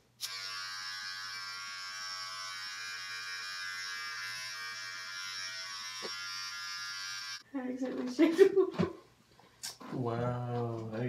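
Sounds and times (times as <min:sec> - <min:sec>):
hair trimmer buzzing: 0:00.2 - 0:07.4.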